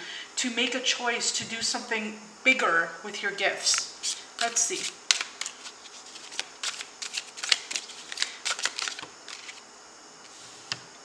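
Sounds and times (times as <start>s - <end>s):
cards being shuffled: 3.6s - 9.6s.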